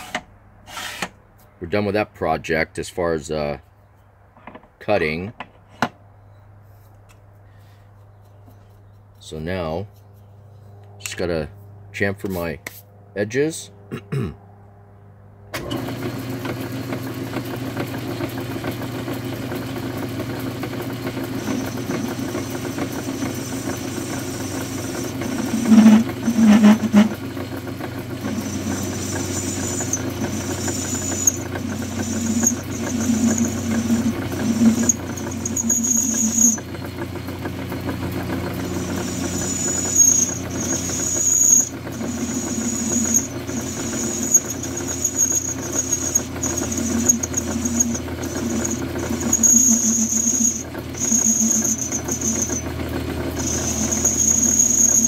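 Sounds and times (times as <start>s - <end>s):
metal lathe running: 17.8s - 55.0s
tool bit squealing on steel: 21.2s - 27.2s, 28.2s - 36.8s, 38.4s - 55.0s.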